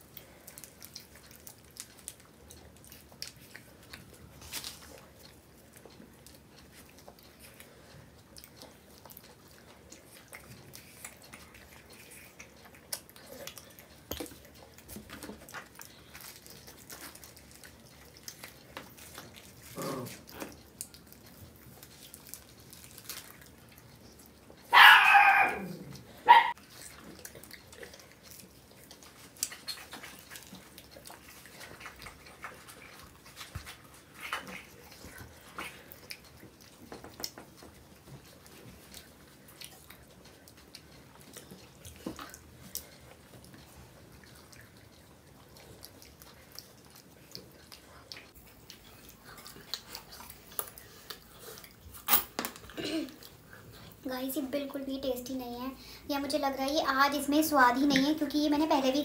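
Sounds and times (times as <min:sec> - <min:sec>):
wrappers crinkling: 0:21.7 - 0:23.5
dog barking: 0:24.7 - 0:26.6
dog yipping: 0:24.7 - 0:26.6
eating clicks: 0:56.2 - 0:58.9.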